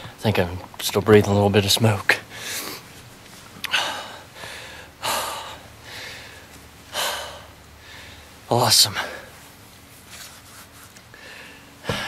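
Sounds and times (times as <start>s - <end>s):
man breathing hard: 2.3s - 2.9s, 3.6s - 9.4s, 11.1s - 12.0s.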